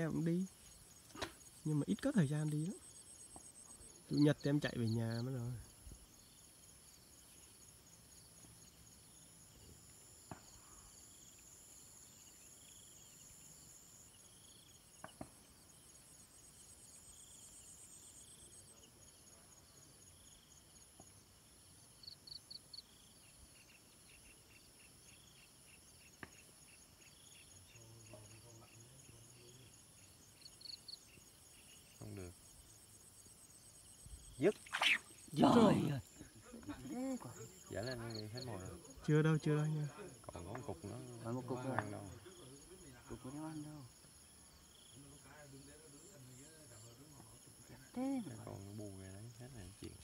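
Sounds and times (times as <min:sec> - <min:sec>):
insects chirring: 0:00.0 - 0:50.0
quick chirps: 0:34.4 - 0:35.9.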